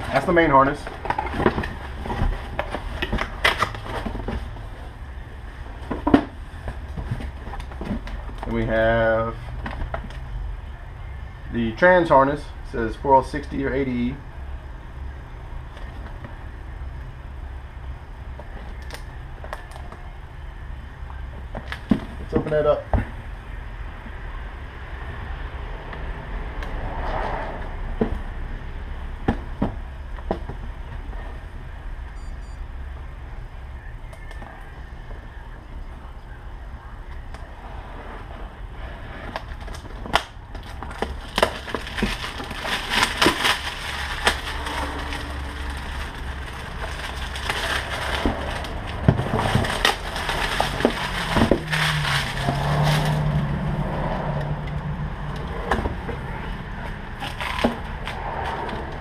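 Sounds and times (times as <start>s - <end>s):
packaging rustling and crinkling: 39.2s - 53.4s, 57.2s - 58.7s.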